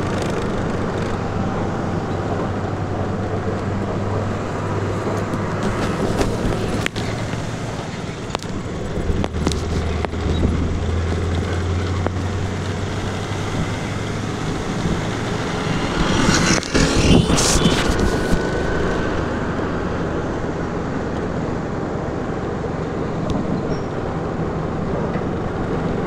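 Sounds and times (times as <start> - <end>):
road and wind noise: 0.0 - 26.0
scooter engine hum: 0.0 - 26.0.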